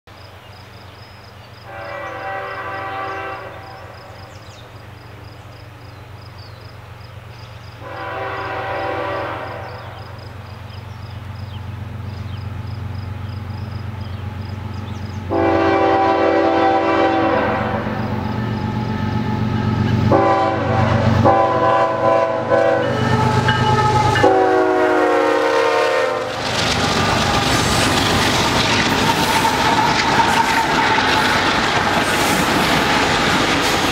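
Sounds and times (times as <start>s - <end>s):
train air horn blasts: 1.7s - 4.3s, 7.8s - 10.1s, 15.3s - 26.4s
train wheel noise: 1.8s - 33.9s
deep diesel engine rumble: 10.4s - 25.1s.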